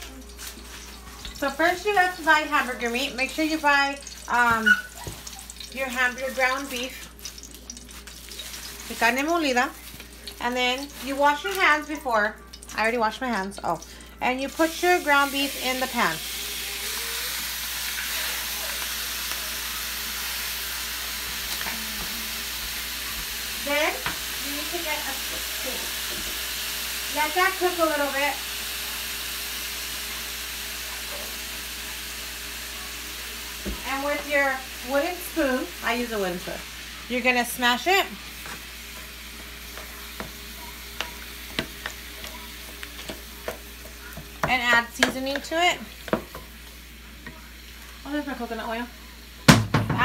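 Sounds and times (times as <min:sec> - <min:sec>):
meat sizzling in a frying pan: 0:00.0 - 0:50.0
wooden spoon knocking and scraping pan: 0:38.4 - 0:46.6.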